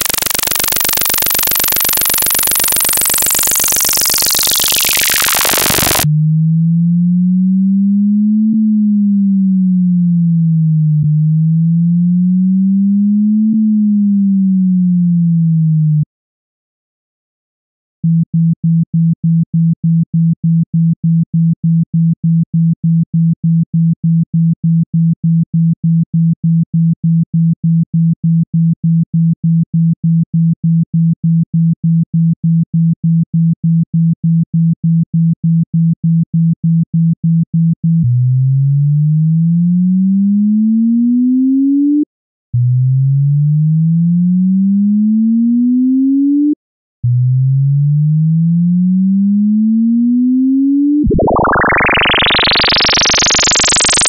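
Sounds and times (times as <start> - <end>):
rising tone sweeps: 0.0 - 6.1, 51.0 - 54.0
pulsing low sine tone: 0.0 - 16.1, 38.0 - 54.0.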